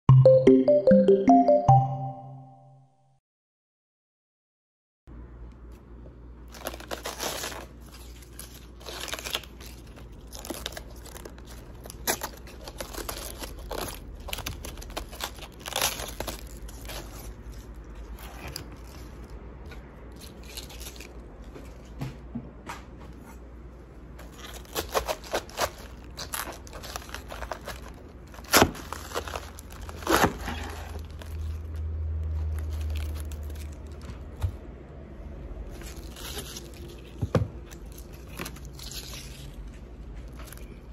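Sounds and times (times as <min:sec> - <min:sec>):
cabbage leaves tearing and crunching: 0:06.5 - 0:21.9, 0:24.2 - 0:34.4, 0:35.5 - 0:40.9.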